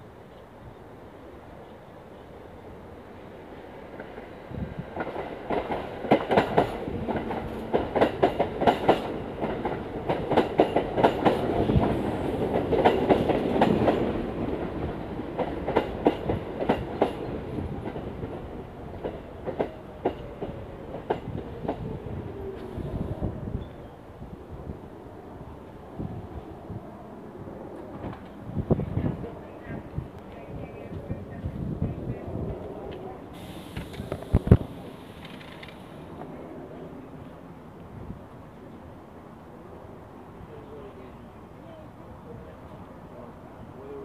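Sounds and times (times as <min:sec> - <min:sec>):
train wheels clicking over rail joints: 0:05.0 - 0:21.8, 0:33.4 - 0:36.0
train falling whine: 0:33.3 - 0:36.4.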